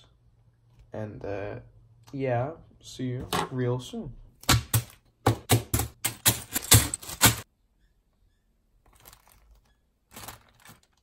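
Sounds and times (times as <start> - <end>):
plastic bags crinkling: 8.9 - 11.0.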